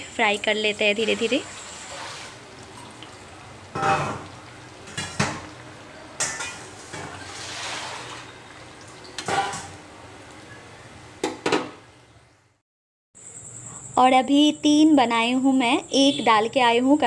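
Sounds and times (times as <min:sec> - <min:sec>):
batter sizzling in hot oil: 0:00.0 - 0:10.6.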